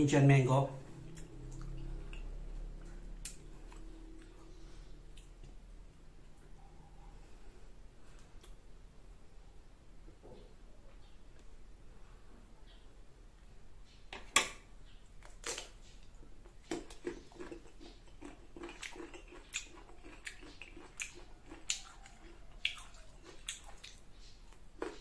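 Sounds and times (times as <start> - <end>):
chewing with wet mouth clicks: 1.0 - 5.6, 15.2 - 25.0.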